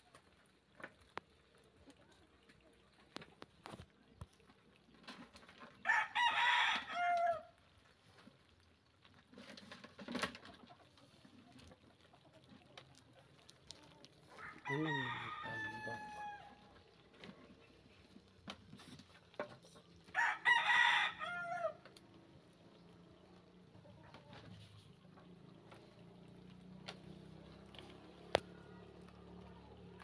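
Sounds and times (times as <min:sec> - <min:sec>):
rooster crowing: 0:05.8 - 0:07.5, 0:14.4 - 0:16.6, 0:20.1 - 0:21.8.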